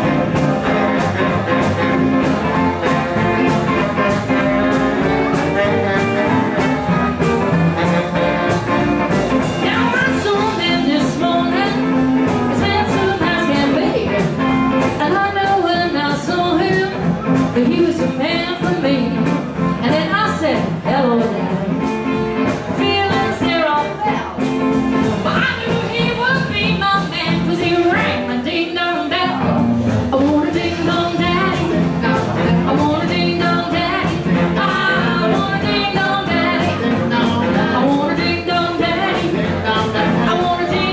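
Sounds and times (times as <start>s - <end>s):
drum kit: 0.0s - 40.9s
electric guitar: 0.0s - 40.9s
saxophone: 0.0s - 40.9s
woman singing: 9.4s - 24.5s, 25.1s - 40.9s.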